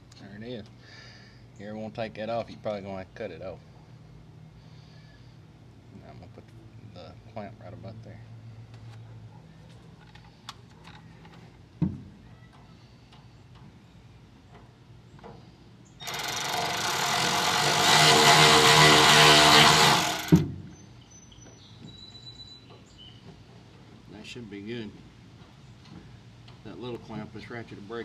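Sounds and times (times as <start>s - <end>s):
cordless power ratchet running: 16.0s - 20.4s.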